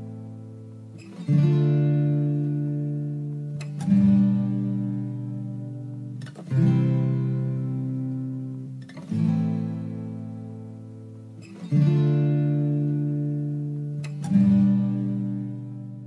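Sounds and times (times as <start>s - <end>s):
acoustic guitar chords strummed: 0.0s - 16.0s.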